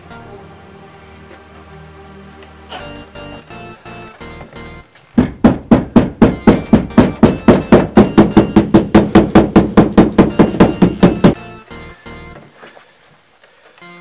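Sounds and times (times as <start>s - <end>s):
rapid ringing hammer blows: 5.7s - 12.2s.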